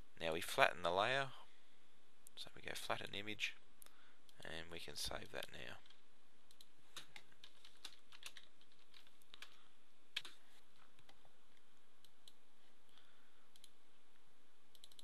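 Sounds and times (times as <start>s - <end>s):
keyboard typing: 5.8s - 9.6s, 10.2s - 10.4s, 14.7s - 15.0s
mouse clicks: 14.7s - 15.0s.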